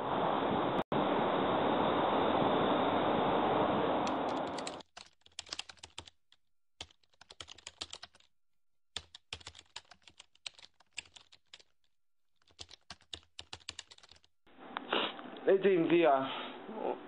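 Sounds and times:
keyboard typing clicks: 4.1s - 6.1s.

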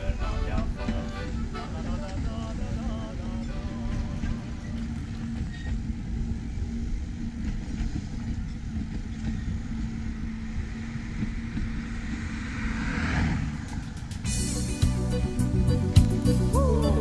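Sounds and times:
vehicle engine and road noise: 0.0s - 17.0s.

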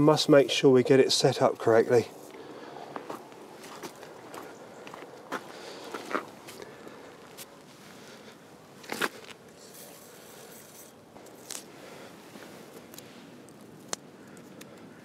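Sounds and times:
faint rustling and scraping: 1.9s - 13.9s.

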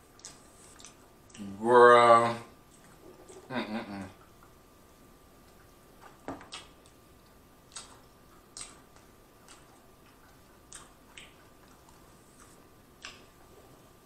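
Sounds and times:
faint steady hum: 0.0s - 14.0s
wet mouth chewing clicks: 0.1s - 1.5s, 6.4s - 13.7s.

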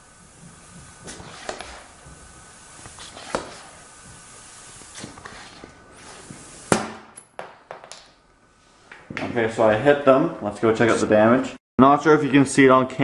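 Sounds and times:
dart gun firing pop: 6.7s - 7.6s.

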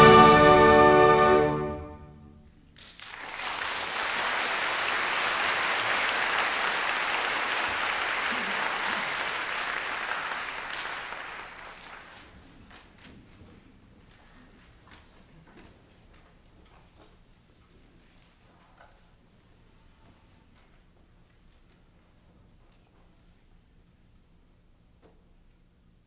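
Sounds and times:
orchestra chord ringing out: 0.0s - 2.5s
audience applause: 2.8s - 13.0s.

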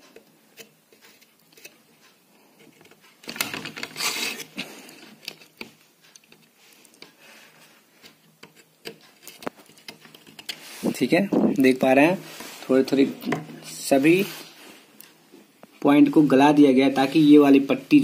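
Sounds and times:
scraping rustle: 2.6s - 5.6s, 9.0s - 14.9s.

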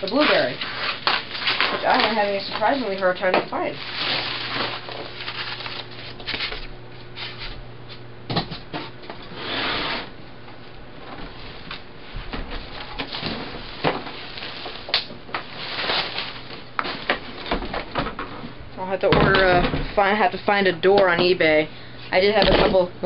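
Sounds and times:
steady low hum: 0.0s - 23.0s
packaging rustling and crinkling: 0.1s - 6.7s, 12.6s - 17.6s.

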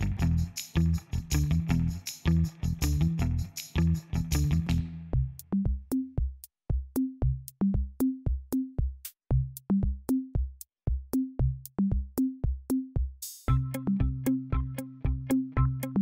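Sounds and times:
drum machine beat: 0.0s - 16.0s.

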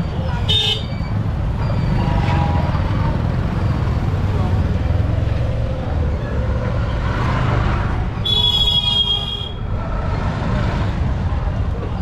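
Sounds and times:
street traffic rumble: 0.0s - 12.0s
vehicle horn honking: 8.2s - 9.6s.

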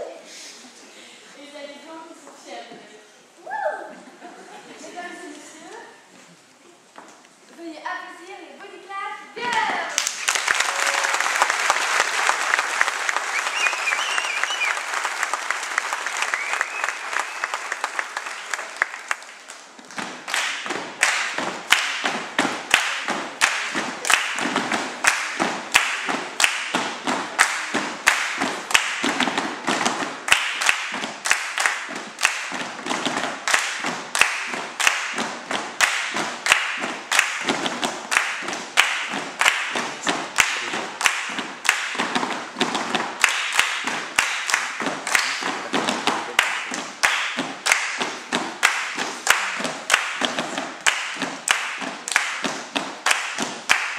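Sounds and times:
children clapping rhythmically: 9.5s - 53.9s
body percussion thumps: 19.8s - 53.9s.

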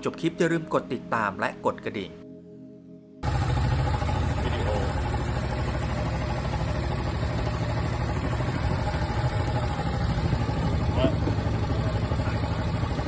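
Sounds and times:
boat engine rumbling: 3.2s - 13.0s.

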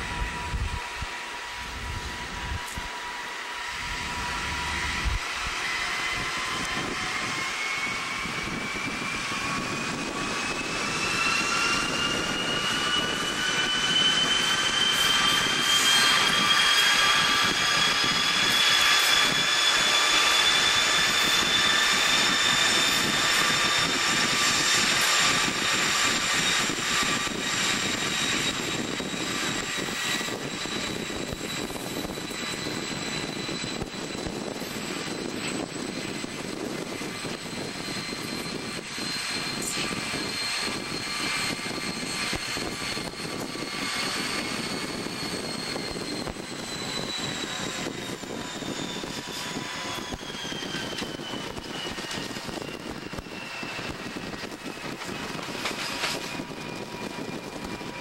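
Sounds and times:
wheel and rail noise: 0.0s - 7.4s, 54.3s - 58.0s
diesel locomotive engine: 0.0s - 58.0s
high whistling whine: 0.0s - 58.0s.

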